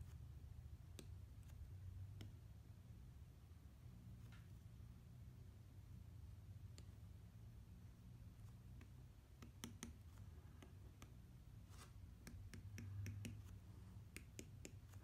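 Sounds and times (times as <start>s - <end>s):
low steady hum: 0.0s - 15.0s
stylus tapping glass screen: 12.2s - 13.5s, 14.1s - 15.0s.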